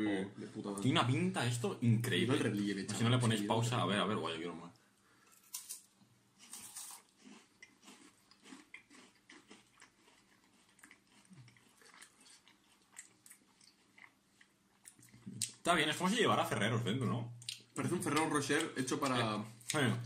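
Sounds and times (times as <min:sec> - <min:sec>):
people chewing: 0:06.4 - 0:15.6, 0:17.4 - 0:20.0.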